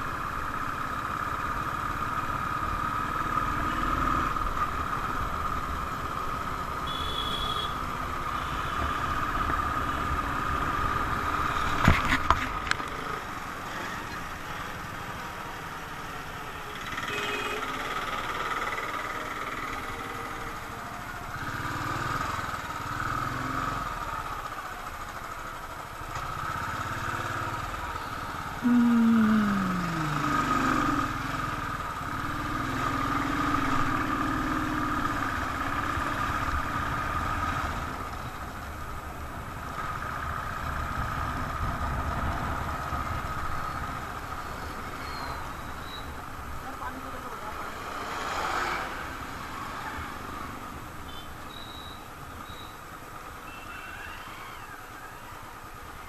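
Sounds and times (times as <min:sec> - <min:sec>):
highway traffic: 0:00.0 - 0:56.0
sound falling in pitch: 0:28.6 - 0:30.7.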